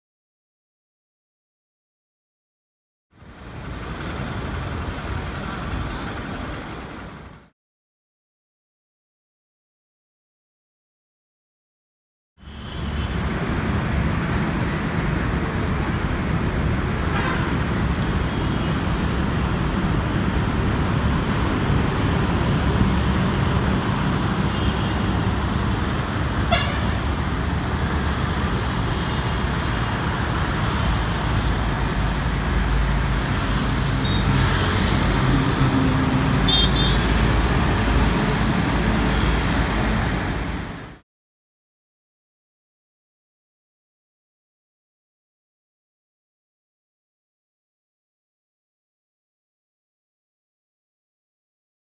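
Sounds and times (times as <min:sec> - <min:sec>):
road traffic rumble: 0:03.1 - 0:07.5, 0:12.4 - 0:41.0
short horn toots: 0:26.5 - 0:26.8.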